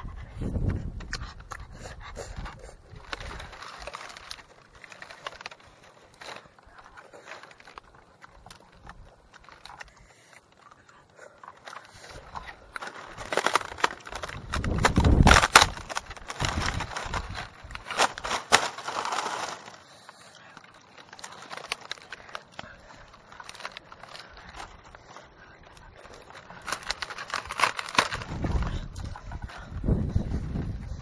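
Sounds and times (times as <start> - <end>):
camera handling rumble: 0.0 - 31.0
dry palm leaves crackling: 2.6 - 31.0.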